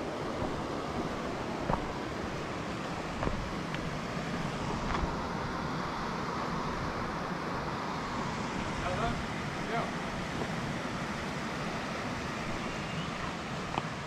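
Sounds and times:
steady rushing noise: 0.0 - 14.0
footsteps on rock: 0.4 - 2.0, 3.1 - 3.9, 4.8 - 5.1.

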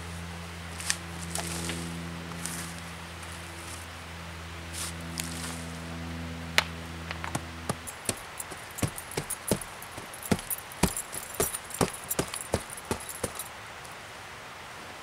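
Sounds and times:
boots crackling on twigs: 7.1 - 13.5.

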